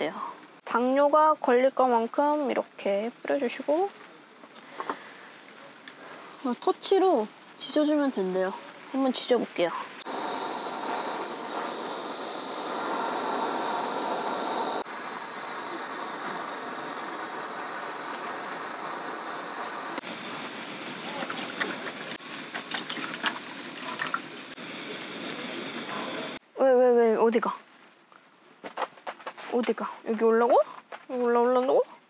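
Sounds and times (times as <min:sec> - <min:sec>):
gas torch hissing: 0:10.0 - 0:22.2.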